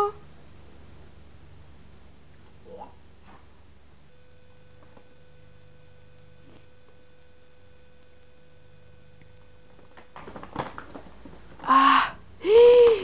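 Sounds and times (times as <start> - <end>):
faint steady hum: 0.0 - 13.0
paper bag rustling and crackling: 9.7 - 11.6
person exclaiming: 11.7 - 13.0.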